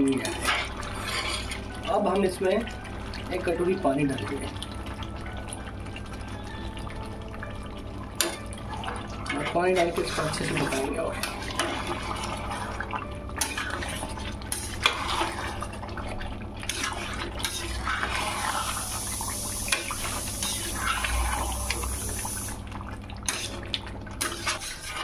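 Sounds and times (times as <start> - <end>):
curry sloshing in pot: 0.0 - 25.0
spatula scraping and knocking pot: 23.3 - 25.0.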